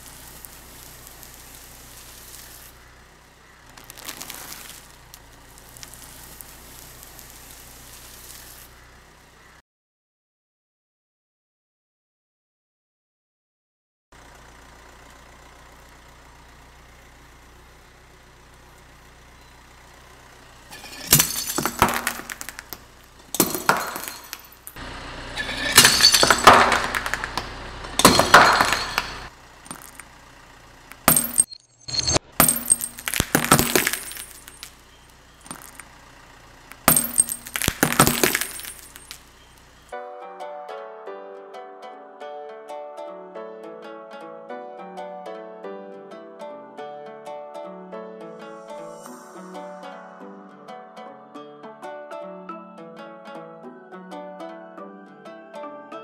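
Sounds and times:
tyre crushing ceramic: 20.7 - 24.8, 25.4 - 30.1, 30.9 - 34.7, 35.4 - 35.9, 36.7 - 39.3
shards clinking: 20.7 - 30.2, 30.9 - 36.0, 36.7 - 39.8.

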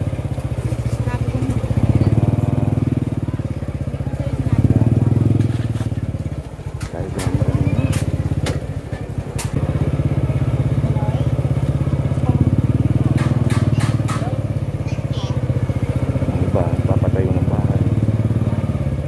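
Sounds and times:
motorcycle engine running: 0.0 - 19.0
sharp clicks and rattles: 5.2 - 9.6.

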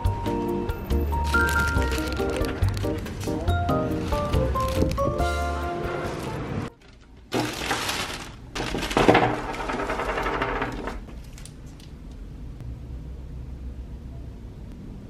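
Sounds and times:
background music: 0.0 - 6.8
plastic packaging crinkling: 1.1 - 5.5, 6.1 - 12.1.

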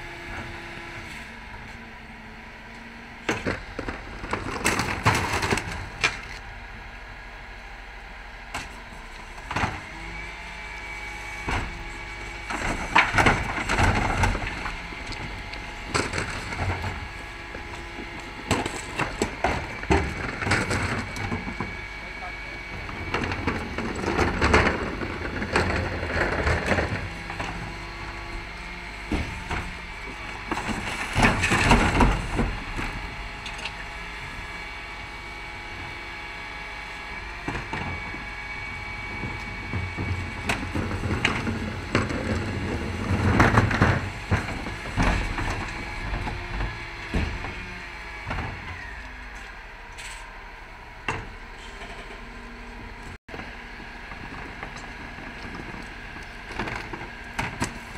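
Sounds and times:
truck engine and hydraulics: 0.0 - 57.9
rubbish crashing into hopper: 29.0 - 33.3.

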